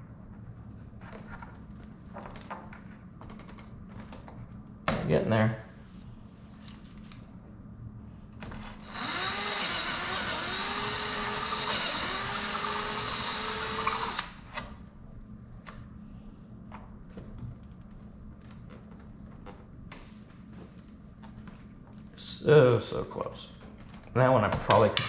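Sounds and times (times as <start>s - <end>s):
cordless drill running: 8.8s - 14.4s.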